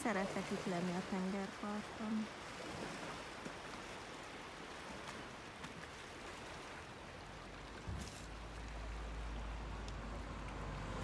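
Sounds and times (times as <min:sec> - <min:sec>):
sea lapping on rocky shore: 0:00.0 - 0:11.0.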